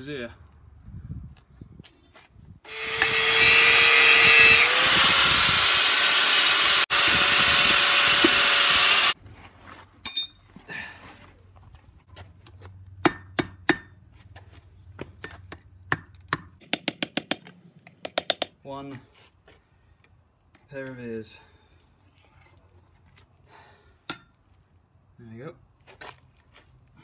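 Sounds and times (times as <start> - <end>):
power tool running on steel: 2.7 - 9.2
light metal clinks and knocks: 10.0 - 10.5.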